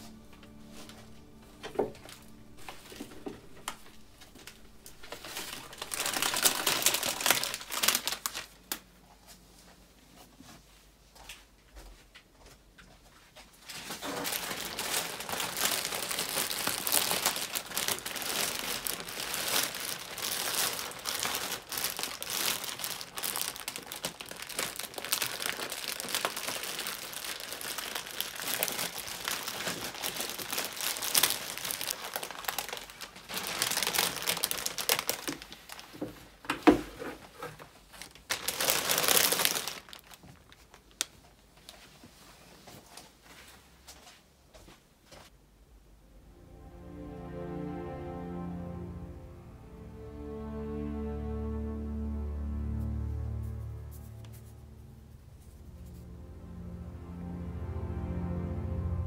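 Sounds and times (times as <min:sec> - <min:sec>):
plastic sleeve crinkling: 0:00.0 - 0:09.0, 0:13.6 - 0:41.9, 0:52.8 - 0:56.1.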